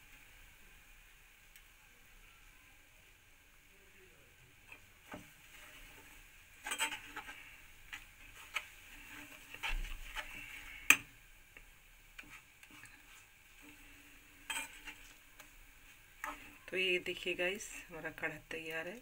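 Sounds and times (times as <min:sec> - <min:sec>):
spoon scraping and clinking metal pan: 0:06.6 - 0:11.1, 0:14.4 - 0:15.2.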